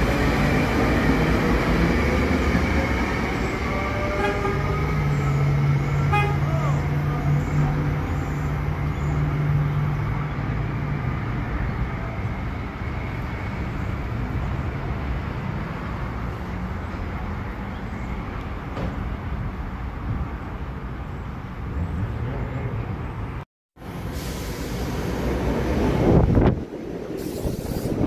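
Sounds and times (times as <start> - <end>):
train wheels rumbling: 0.0 - 10.2
electric train hum: 0.0 - 16.2
outdoor noise: 0.0 - 28.0.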